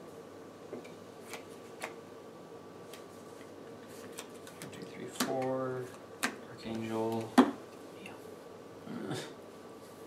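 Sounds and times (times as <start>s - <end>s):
faint steady hum: 0.0s - 10.0s
playing cards clicking and tapping: 0.8s - 2.0s, 3.8s - 7.6s.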